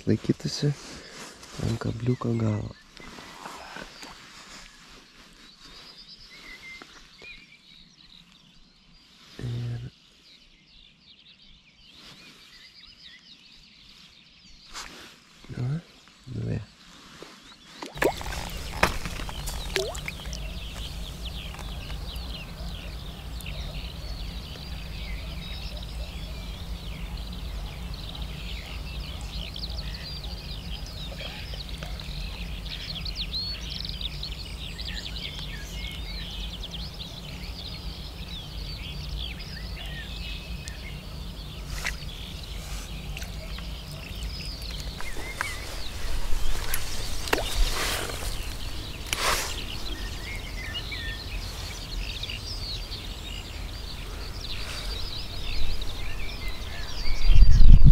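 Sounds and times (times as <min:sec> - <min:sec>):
birds singing high chirps: 0:00.0 - 0:57.9
steady low rumble: 0:18.0 - 0:47.4.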